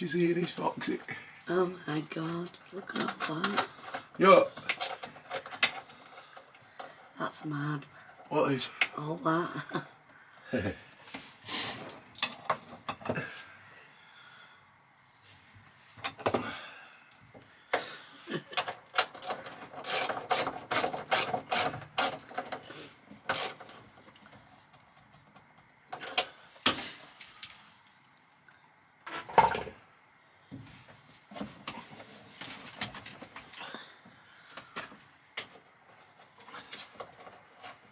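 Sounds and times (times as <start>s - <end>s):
ratchet spanner clicking: 19.2s - 22.2s, 23.3s - 23.6s.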